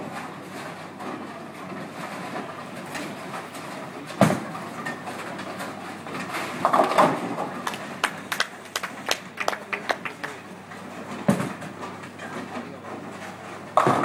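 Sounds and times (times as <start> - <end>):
bowling pins clattering: 0.0 - 8.3, 10.7 - 14.0
balls rolling on lanes: 0.4 - 14.0
bowling ball thud on wooden lane: 13.8 - 14.0.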